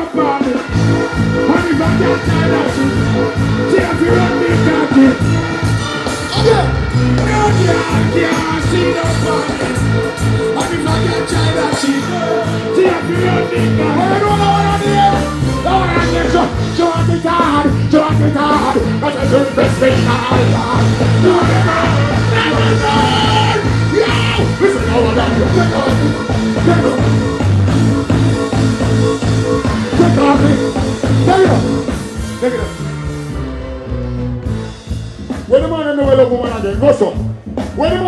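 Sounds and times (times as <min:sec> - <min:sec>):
live reggae band: 0:00.0 - 0:38.0
person singing: 0:01.8 - 0:27.4.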